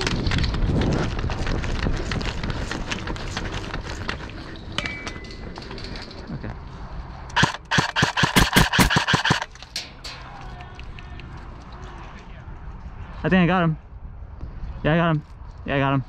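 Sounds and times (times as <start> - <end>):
movement noise: 0.0 - 7.8
airsoft rifle full-auto burst: 7.4 - 9.5.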